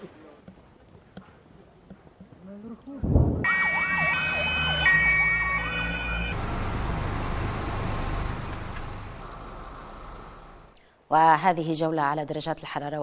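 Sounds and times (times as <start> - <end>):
low rumble of noise: 3.0 - 3.5
two-tone siren: 3.4 - 6.4
wailing siren: 3.4 - 6.4.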